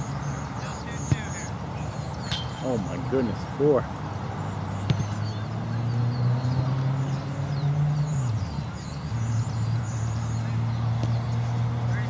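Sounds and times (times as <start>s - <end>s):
sharp thump: 2.3s - 2.9s.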